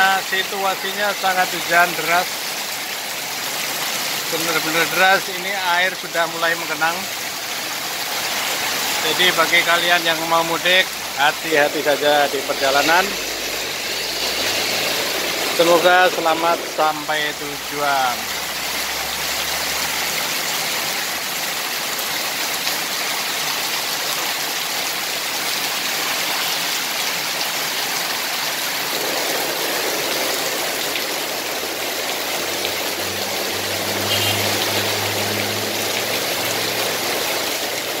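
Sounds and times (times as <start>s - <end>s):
heavy rain pouring on road: 0.0s - 38.0s
passing vehicle engine hum: 32.5s - 37.4s.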